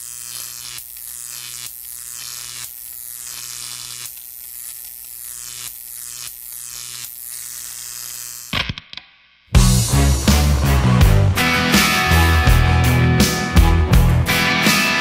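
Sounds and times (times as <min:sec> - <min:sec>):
electrical hum and buzz: 0:00.0 - 0:08.7.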